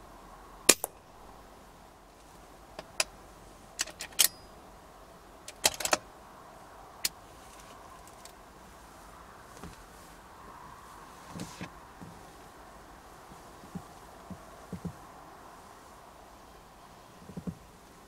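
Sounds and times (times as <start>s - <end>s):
rifle bolt metallic clicks: 3.8s - 4.5s, 5.5s - 6.0s.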